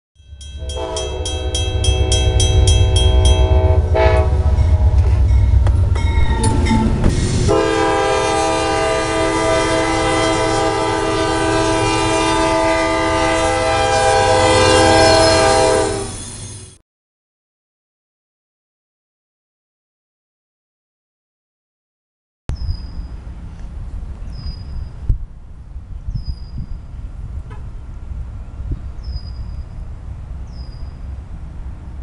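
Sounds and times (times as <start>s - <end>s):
crossing bell ringing: 0.2s - 7.6s
locomotive engine and wheels rumbling: 0.2s - 16.8s, 22.5s - 32.0s
locomotive air horn chord: 0.4s - 5.6s, 6.4s - 16.2s.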